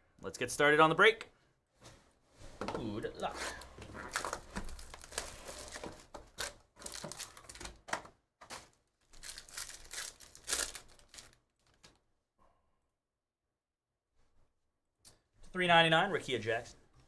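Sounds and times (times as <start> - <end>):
foil wrapper crinkling and tearing: 4.0 - 7.8, 8.5 - 12.0.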